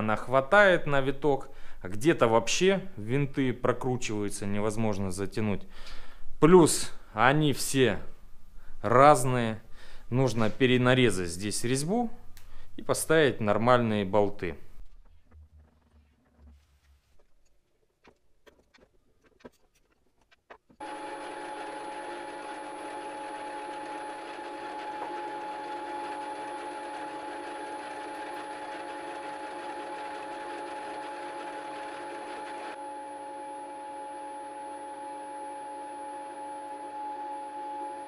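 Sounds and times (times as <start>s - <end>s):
milling machine whine and hum: 20.8s - 38.0s.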